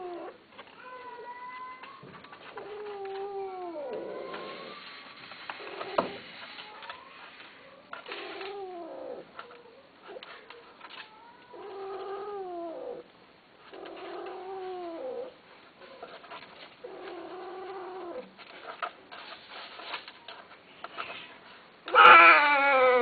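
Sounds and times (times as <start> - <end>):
cat yowling: 21.9 - 23.0.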